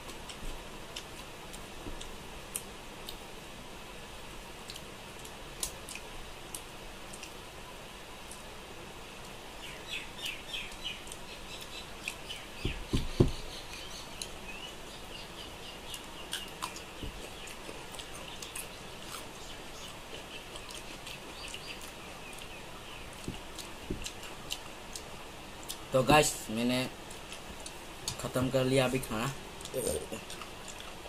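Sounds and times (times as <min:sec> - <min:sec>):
small birds chirping: 0:09.2 - 0:31.0
dull thumps: 0:12.6 - 0:13.5, 0:23.2 - 0:24.1
chewing: 0:15.9 - 0:25.8, 0:29.6 - 0:31.0.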